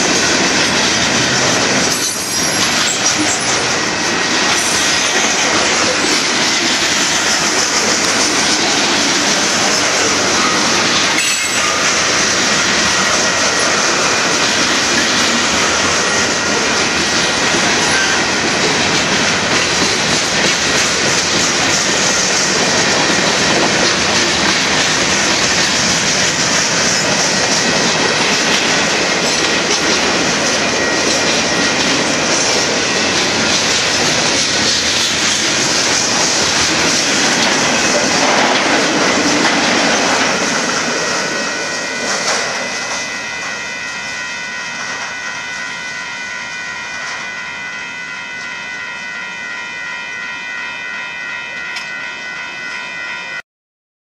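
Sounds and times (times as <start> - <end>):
freight train wheels clattering: 0.0 - 43.7
grade crossing bell ringing: 0.0 - 53.4
wheel squeal: 17.8 - 18.3.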